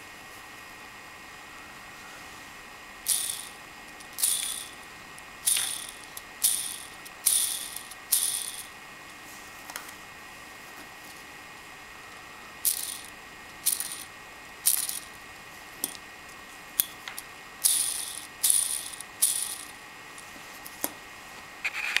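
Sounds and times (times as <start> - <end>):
plastic ball bearing rattling: 4.2 - 4.8, 17.7 - 19.7.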